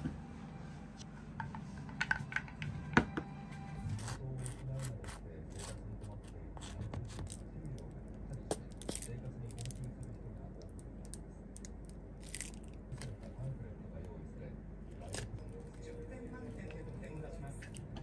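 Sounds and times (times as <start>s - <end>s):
low steady hum: 0.0s - 18.0s
objects clicking and tapping: 1.4s - 3.2s.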